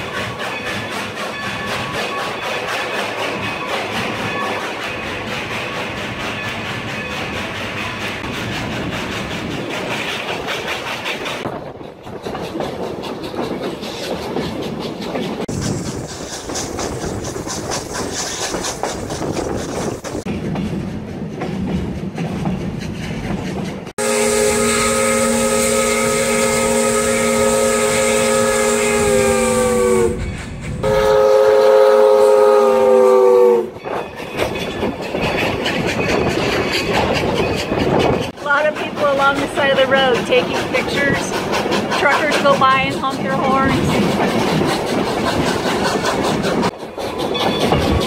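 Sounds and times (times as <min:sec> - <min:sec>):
train wheels clicking over rail joints: 0:00.0 - 0:24.0, 0:24.6 - 0:48.0
steam locomotive chime whistle: 0:24.0 - 0:33.8.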